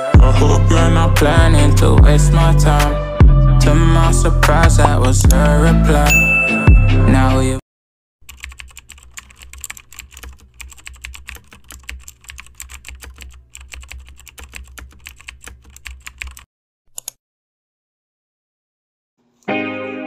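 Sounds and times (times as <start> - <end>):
computer keyboard typing clicks: 8.2 - 17.2.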